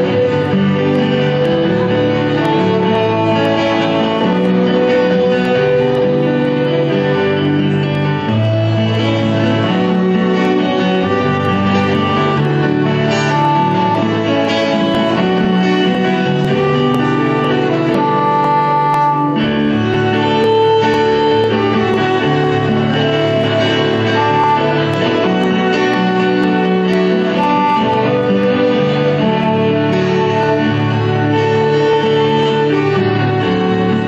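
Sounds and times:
strummed acoustic guitar: 0.0 - 34.0
violin melody: 0.0 - 34.0.

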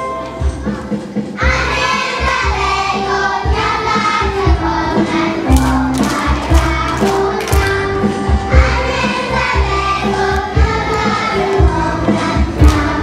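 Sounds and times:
backing track with steady beat: 0.0 - 13.0
children singing: 1.4 - 13.0.

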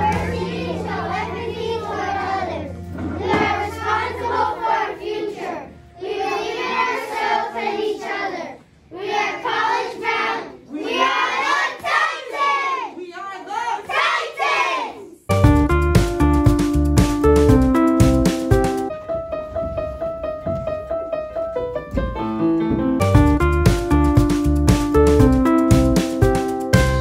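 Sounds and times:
children chanting in unison: 0.0 - 15.3.

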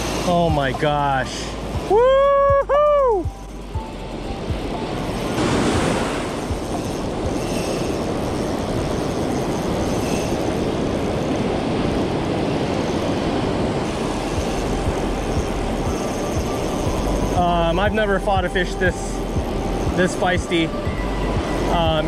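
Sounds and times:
wind buffeting microphone: 1.5 - 22.0
surf washing over sand: 4.6 - 20.8.

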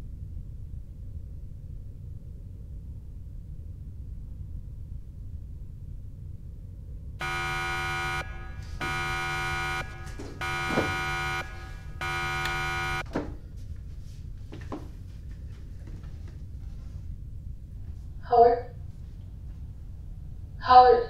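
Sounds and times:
electric door buzzer: 7.2 - 13.0
low hum: 7.2 - 13.0.

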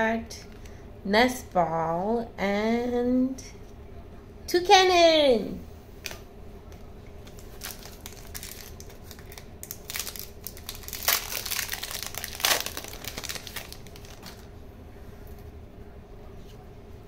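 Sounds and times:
foil wrapper crinkling: 7.2 - 14.5.

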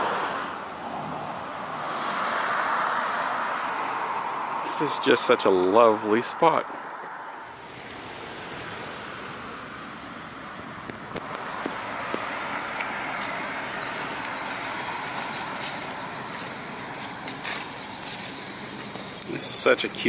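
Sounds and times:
vehicle hum: 0.0 - 20.0
footsteps on leaves: 11.2 - 20.0.

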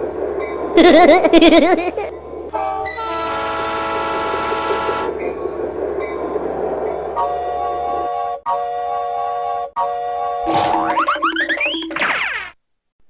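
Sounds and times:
multi-tone train horn blast: 2.5 - 5.2, 7.2 - 10.5
warbling train horn blast: 2.5 - 5.2, 7.2 - 10.5.

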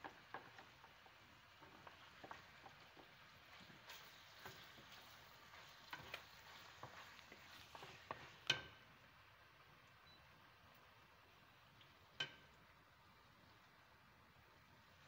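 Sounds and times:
faint oil sizzle: 0.0 - 15.0
wooden spatula stirring in pan: 0.0 - 15.0
spatula knocking on pan: 12.2 - 12.5.

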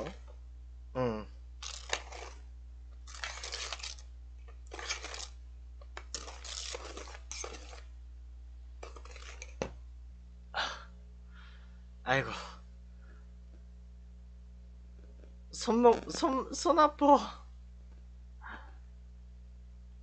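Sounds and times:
whisk scraping metal bowl: 4.7 - 5.3, 6.1 - 7.9.

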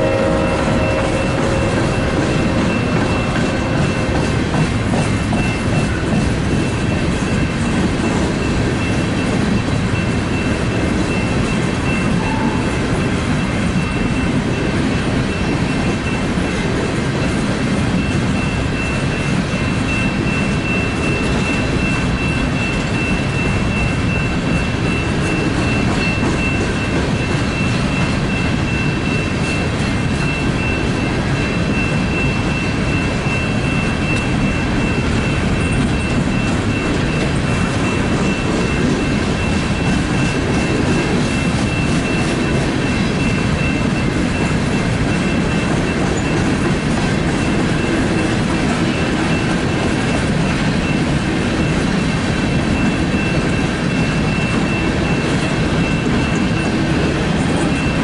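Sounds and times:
thin high whine: 0.0 - 4.4
train wheels rumbling on rail: 0.0 - 58.0.

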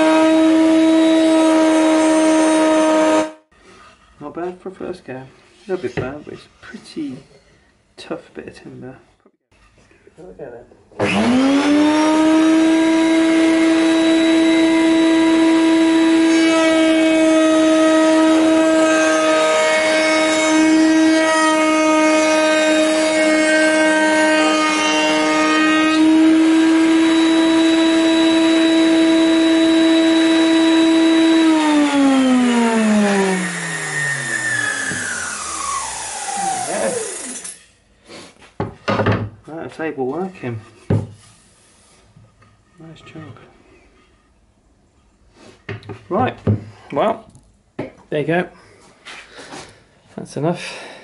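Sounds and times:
router whining: 0.0 - 3.4, 11.0 - 37.7
router cutting timber: 0.0 - 3.5, 11.0 - 37.6
router spinning down: 11.0 - 37.6.

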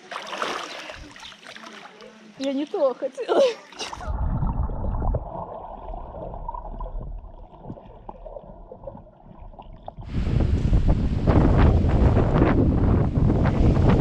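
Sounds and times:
wind on microphone: 4.0 - 5.4, 10.0 - 14.0.

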